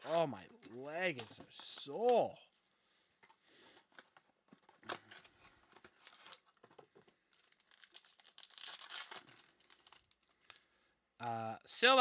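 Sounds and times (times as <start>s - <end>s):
plastic wrapper crinkling and tearing: 4.6s - 10.6s.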